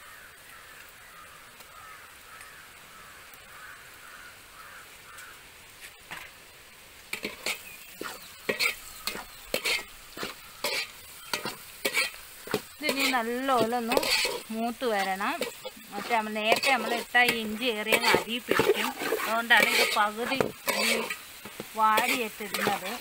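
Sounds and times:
onions sizzling in oil: 0:00.0 - 0:23.0
metal spoon scraping a pot: 0:07.2 - 0:23.0.

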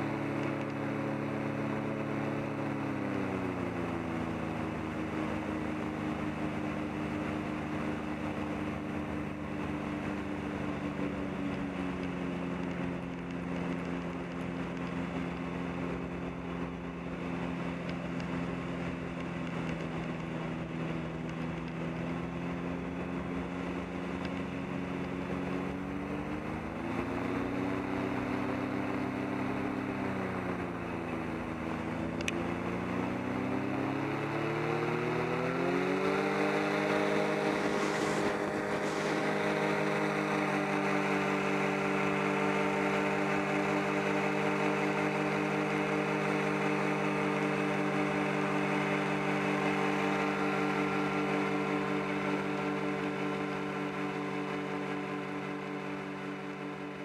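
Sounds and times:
engine and propeller running: 0:00.0 - 0:57.0.

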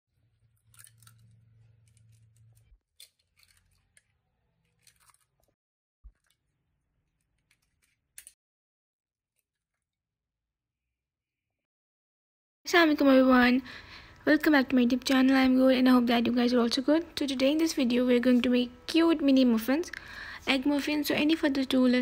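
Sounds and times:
eggshell crackling: 0:00.3 - 0:05.5
eggs cracking on glass bowl: 0:00.5 - 0:04.2.

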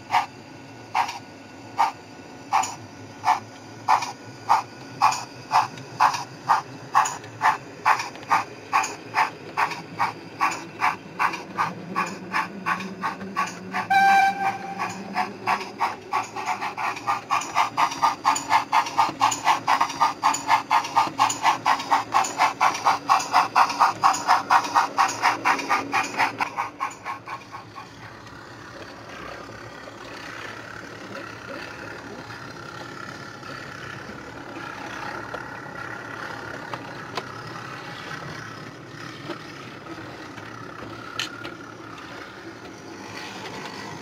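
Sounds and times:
model steam locomotive chuffs: 0:00.0 - 0:44.0
train whistle blast: 0:13.8 - 0:15.1.

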